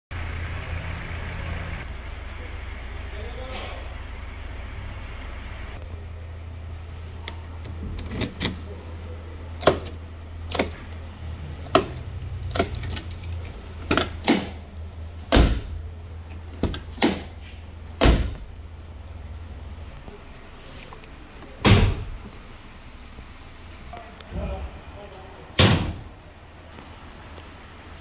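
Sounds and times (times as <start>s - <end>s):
car door latch clicking: 9.6s - 10.9s
key working door lock: 11.7s - 14.5s
keys jangling on key ring: 12.5s - 13.5s
heavy thuds: 21.6s - 22.4s.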